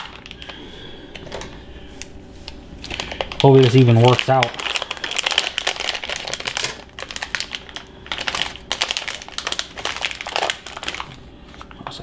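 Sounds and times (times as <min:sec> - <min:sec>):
plastic wrapper crinkling: 0:00.0 - 0:00.7, 0:02.4 - 0:11.8
scissors cutting plastic wrapper: 0:02.8 - 0:11.2.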